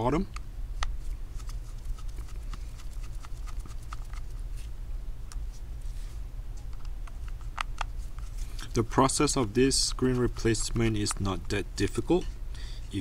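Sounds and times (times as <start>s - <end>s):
steady low hum: 0.0s - 13.0s.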